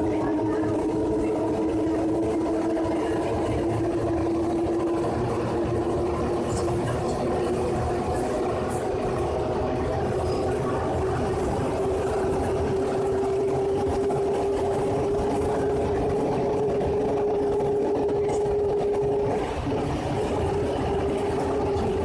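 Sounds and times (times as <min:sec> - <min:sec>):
rumble of train tyres: 0:00.0 - 0:22.0
train motor whine: 0:07.5 - 0:22.0.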